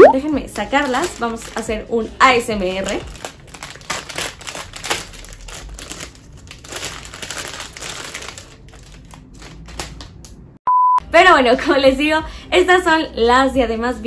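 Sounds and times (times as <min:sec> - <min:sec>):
plastic bag crinkling: 0:00.3 - 0:10.3
short high beep: 0:10.7 - 0:11.0.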